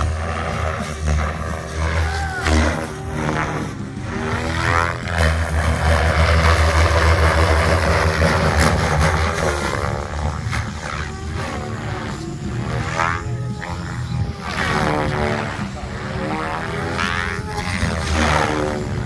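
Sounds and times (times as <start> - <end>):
rc helicopter rotor and motor whine: 0.0 - 19.0.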